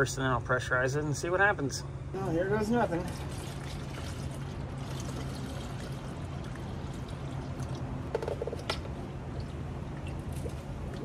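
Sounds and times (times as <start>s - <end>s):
coolant trickling into funnel: 2.6s - 11.0s.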